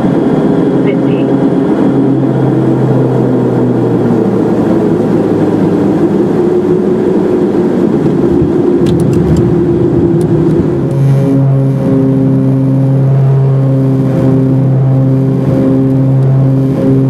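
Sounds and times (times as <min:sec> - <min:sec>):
propeller drone: 0:00.0 - 0:17.0
rough uneven rumble: 0:06.5 - 0:17.0.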